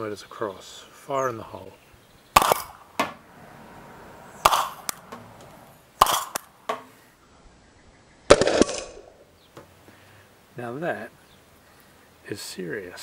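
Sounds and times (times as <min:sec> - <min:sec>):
gas launcher pops: 0:02.4 - 0:03.2.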